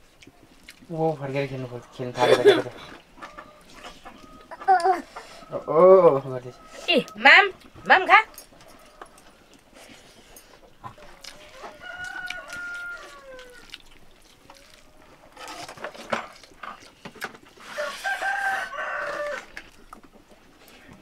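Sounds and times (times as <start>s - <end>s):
rooster crowing: 3.2s - 9.6s, 11.0s - 13.8s, 17.6s - 19.7s.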